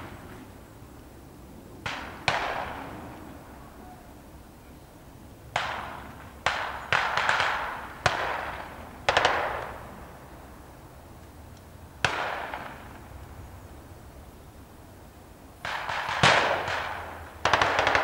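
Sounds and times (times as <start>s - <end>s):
gunshots with long echo: 1.8s - 3.2s, 5.5s - 9.9s, 12.0s - 13.0s, 15.6s - 18.0s.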